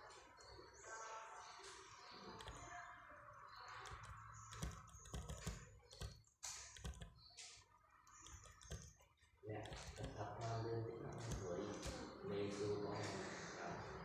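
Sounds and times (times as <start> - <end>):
faint typing on keys: 1.6 - 12.7.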